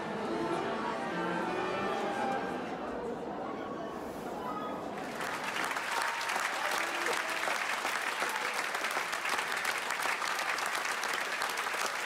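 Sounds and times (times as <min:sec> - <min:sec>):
audience applauding: 0:05.0 - 0:12.0.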